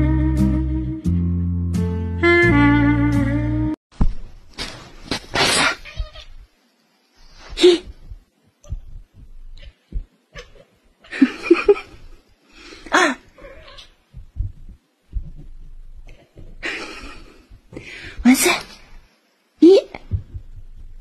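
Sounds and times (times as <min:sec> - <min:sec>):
cat meowing: 0:05.6 - 0:06.4, 0:13.4 - 0:14.0
person laughing: 0:11.1 - 0:12.2, 0:16.5 - 0:17.6.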